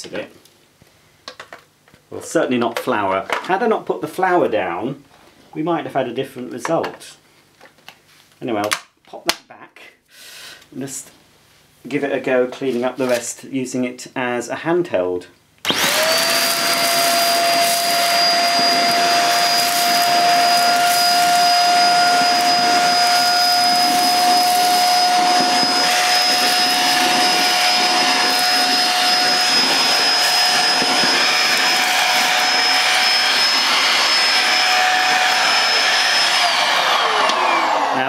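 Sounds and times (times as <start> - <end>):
vacuum sucking up grains: 15.7 - 37.7
vacuum motor whining: 15.7 - 38.0.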